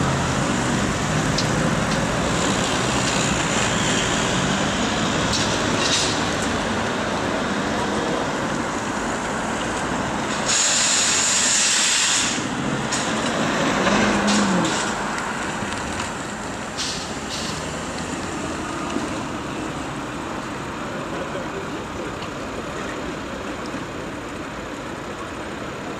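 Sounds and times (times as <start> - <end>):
cars driving past: 0.0 - 25.9
loud hiss: 9.9 - 13.4, 16.7 - 17.8.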